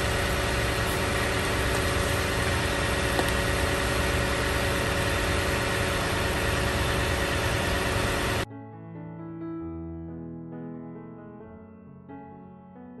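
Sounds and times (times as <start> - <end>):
minivan engine idling: 0.0 - 8.5.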